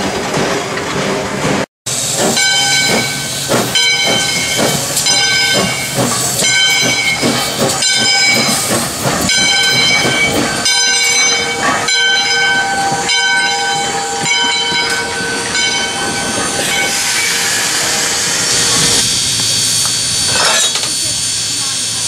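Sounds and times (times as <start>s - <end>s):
steam hissing: 1.9s - 22.0s
locomotive bell ringing: 2.3s - 19.0s.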